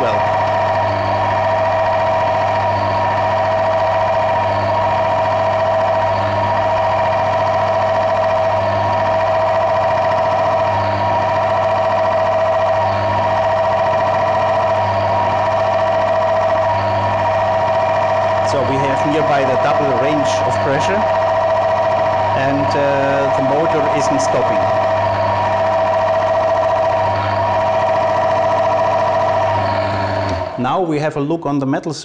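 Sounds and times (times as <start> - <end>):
electric motor humming: 0.0 - 30.8.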